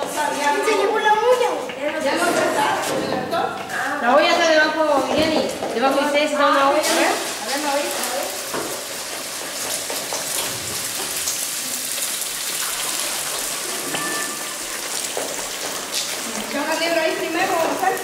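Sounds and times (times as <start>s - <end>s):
batter sizzling in a frying pan: 5.8s - 18.0s.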